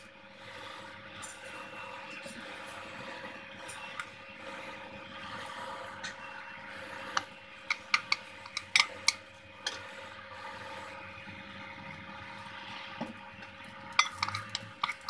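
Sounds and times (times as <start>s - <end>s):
wooden spatula scraping metal pot: 7.7s - 9.8s, 14.0s - 15.0s.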